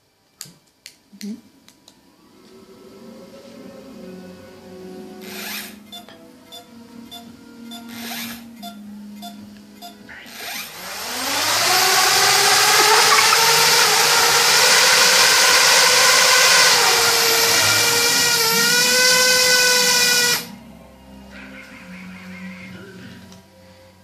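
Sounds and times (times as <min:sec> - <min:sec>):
drone motors whining: 0:11.0 - 0:20.5.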